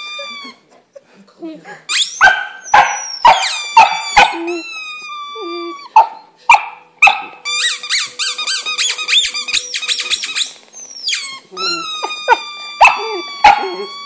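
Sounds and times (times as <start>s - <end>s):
rubber squeaky toy: 0.0s - 0.7s, 1.9s - 6.3s, 7.1s - 14.0s
puppy yipping and barking: 2.0s - 8.1s, 9.9s - 14.0s.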